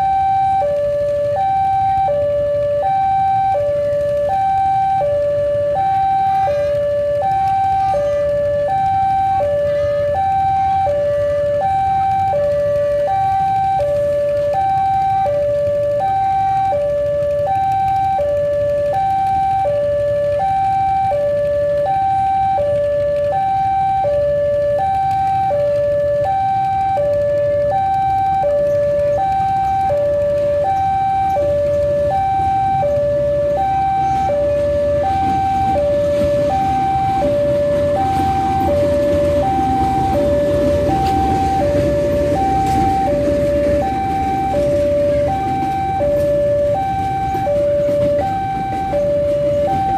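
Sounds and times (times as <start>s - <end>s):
two-tone level crossing alarm: 0.0s - 49.9s
train rumbling past: 34.0s - 49.9s.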